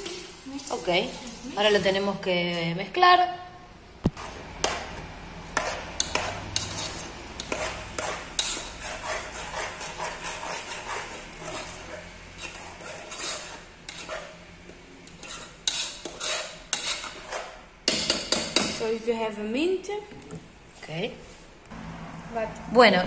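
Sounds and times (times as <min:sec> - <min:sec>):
metal spoon stirring in saucepan: 0:04.2 - 0:18.8.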